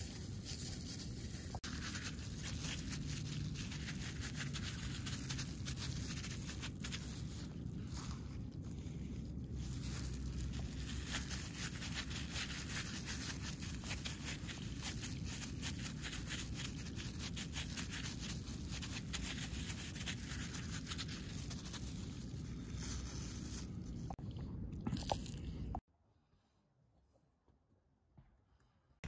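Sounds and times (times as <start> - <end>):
plastic glove crinkling: 0.0 - 24.2
low rumble: 4.8 - 12.2.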